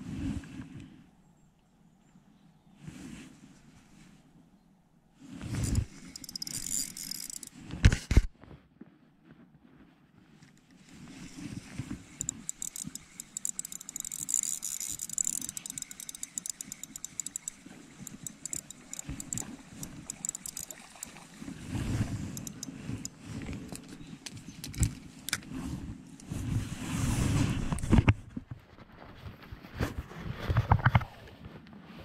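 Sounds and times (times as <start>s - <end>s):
fishing reel cranking ticking: 5.6s - 7.6s, 12.0s - 23.8s.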